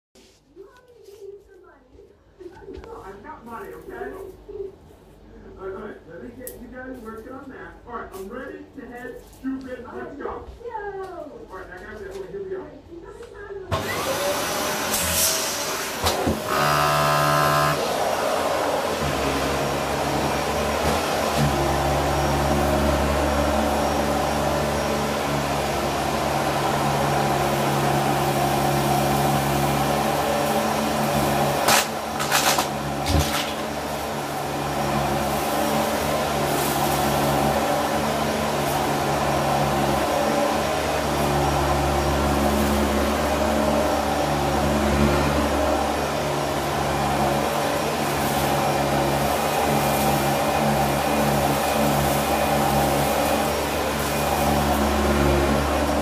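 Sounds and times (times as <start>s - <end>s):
vacuum cleaner running: 13.7s - 56.0s.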